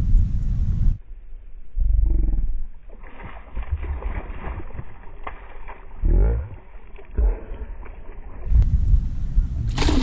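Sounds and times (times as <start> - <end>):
fish splashing in water: 2.9 - 8.5, 9.7 - 10.0.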